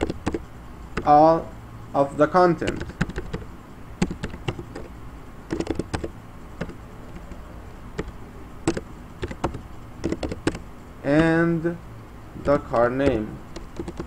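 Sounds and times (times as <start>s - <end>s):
keyboard keystroke clicks: 0.0s - 0.4s, 4.0s - 4.9s, 5.5s - 7.4s, 8.0s - 10.6s, 12.4s - 14.0s.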